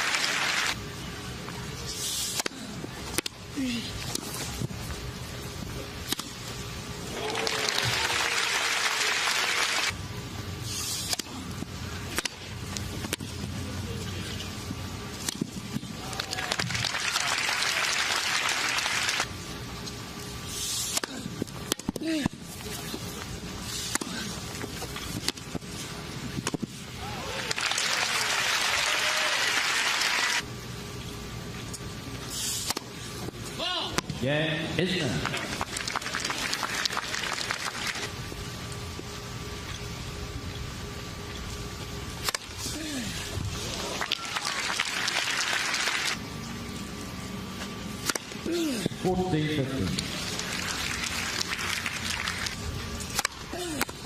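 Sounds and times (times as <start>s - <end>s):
crowd applauding: 0.0s - 0.8s, 7.1s - 9.9s, 16.3s - 19.2s, 27.4s - 30.4s, 35.3s - 38.1s, 43.9s - 46.2s, 50.3s - 52.6s.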